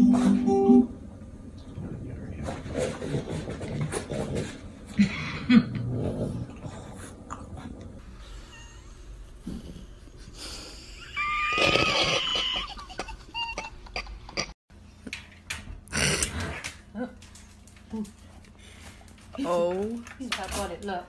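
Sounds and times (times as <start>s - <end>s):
dogs grumbling: 2.4s - 8.0s
dog grunts: 2.7s - 7.6s, 15.9s - 16.8s
dog whining: 8.3s - 9.0s.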